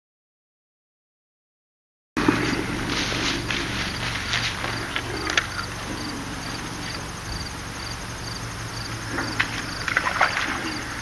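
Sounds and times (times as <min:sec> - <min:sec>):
cricket chirping: 0:02.4 - 0:11.0.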